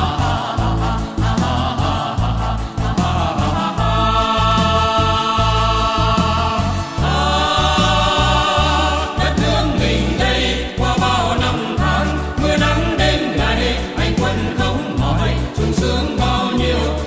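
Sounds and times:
choir-like chords: 0:00.0 - 0:17.0
pulsing bass beat: 0:00.0 - 0:17.0.

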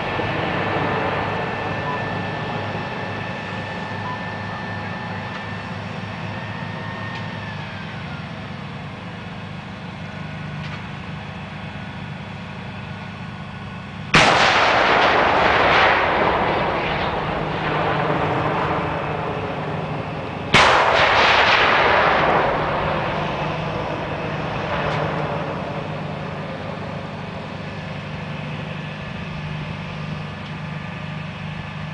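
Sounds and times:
artillery shots with rolling echo: 0:00.0 - 0:06.1, 0:14.1 - 0:30.3
steady low hum: 0:00.0 - 0:31.9.

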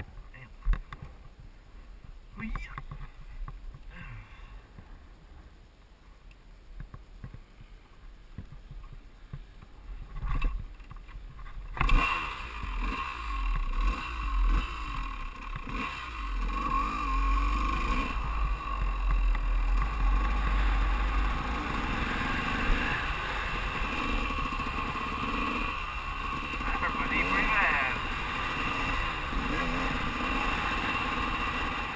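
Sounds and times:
dirt bike engine revving: 0:11.7 - 0:31.9.

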